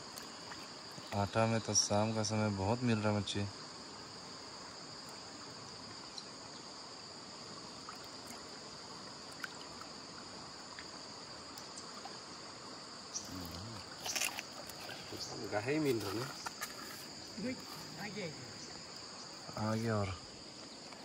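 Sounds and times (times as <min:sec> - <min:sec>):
insects droning: 0:00.0 - 0:21.0
mountain stream flowing: 0:00.0 - 0:21.0
faint ticks: 0:10.7 - 0:11.9.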